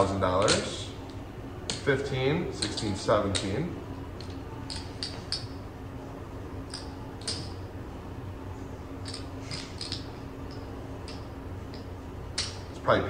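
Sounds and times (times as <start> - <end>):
steady low hum: 0.0 - 13.0
casino chips clicking: 4.2 - 5.5, 6.7 - 7.5, 9.0 - 10.1.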